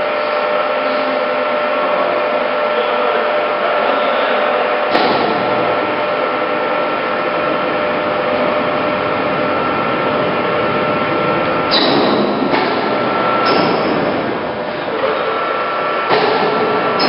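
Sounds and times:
lathe running with whine: 0.0 - 17.0
sharp knock: 4.9 - 5.6.

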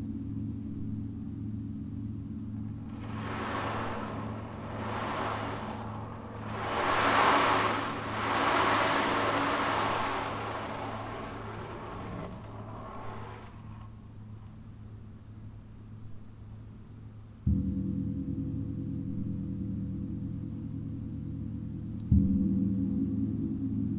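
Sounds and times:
ocean drum beads rolling: 2.8 - 13.9.

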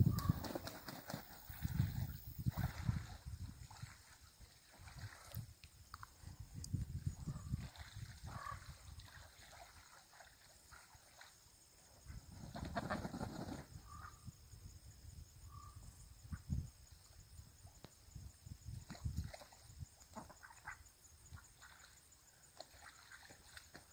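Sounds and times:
distant duck and goose calls: 12.6 - 13.2.

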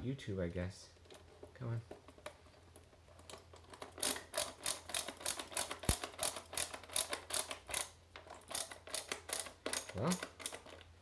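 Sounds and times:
screwdriver clicking: 3.3 - 10.8.

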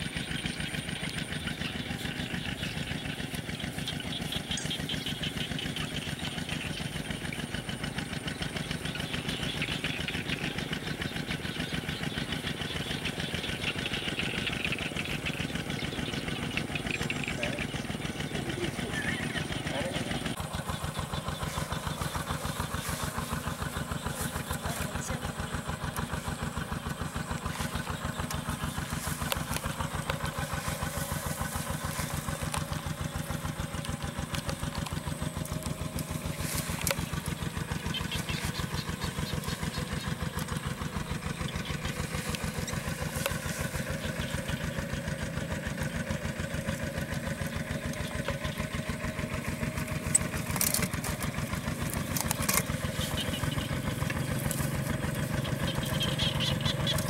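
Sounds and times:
small engine idling: 0.0 - 57.0.

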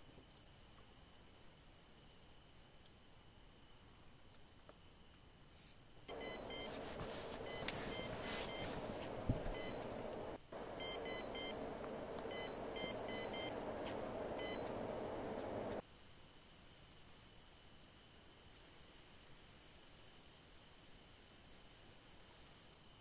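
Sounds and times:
steady hiss: 0.0 - 23.0
bite alarm beeping: 6.1 - 15.8.

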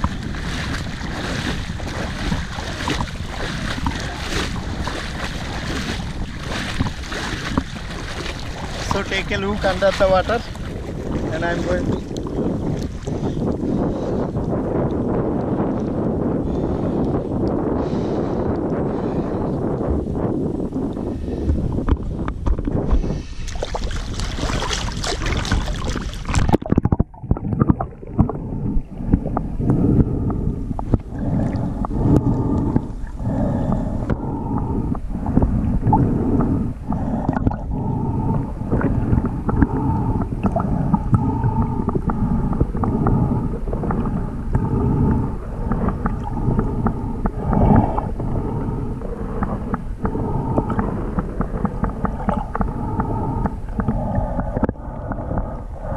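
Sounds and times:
small knocks and taps underwater: 0.0 - 5.9, 6.5 - 9.0, 21.5 - 22.8, 23.5 - 28.4, 49.4 - 52.8
sea water splashing: 0.0 - 14.5, 22.4 - 55.9
muffled underwater rumble: 0.0 - 55.9.

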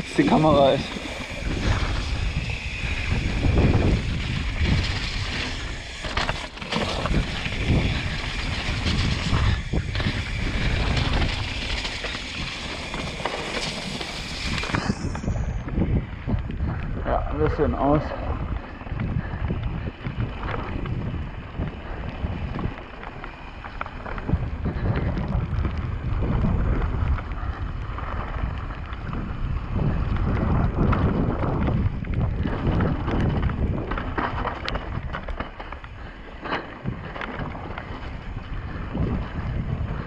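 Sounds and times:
tyres rolling over wet gravel: 0.0 - 16.1, 17.5 - 40.0
bike rattling: 0.0 - 40.0
wind buffeting microphone: 0.0 - 40.0.

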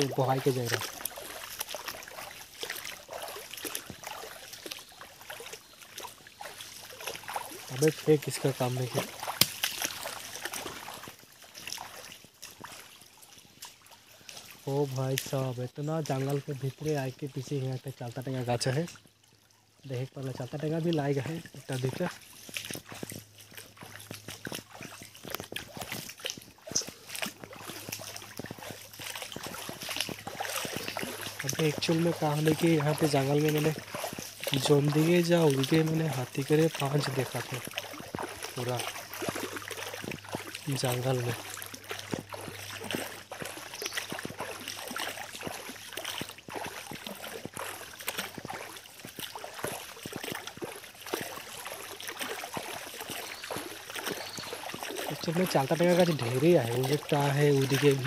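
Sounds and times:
leaves and twigs crackling: 0.0 - 11.2, 23.8 - 45.0, 52.2 - 58.0
footsteps through dry undergrowth: 0.0 - 15.4, 21.0 - 58.0.

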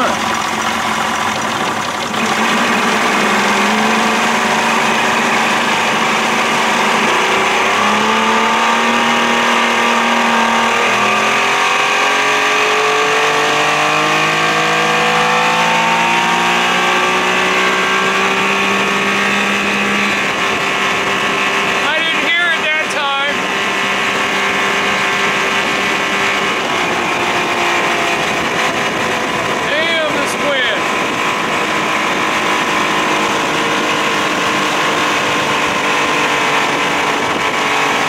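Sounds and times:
water rushing: 0.0 - 12.4
outboard motor running: 0.0 - 38.0.

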